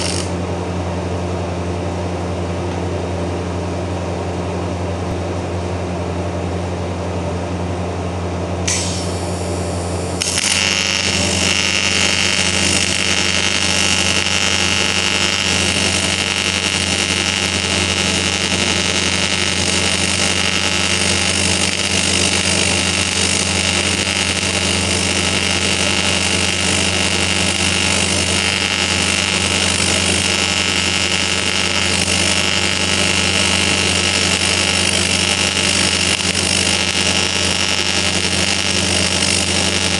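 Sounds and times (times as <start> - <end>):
high-pitched arc hiss: 0.0 - 0.3, 8.7 - 39.9
welder humming: 0.0 - 0.4, 8.6 - 39.9
welding arc buzz with whine: 0.0 - 2.7, 8.6 - 39.9.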